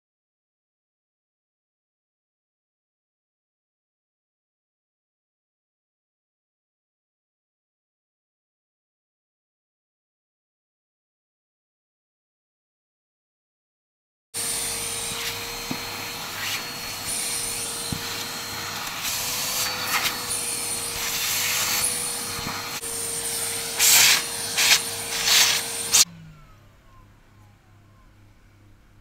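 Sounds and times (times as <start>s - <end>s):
handheld vacuum cleaner whining: 14.4s - 27.0s.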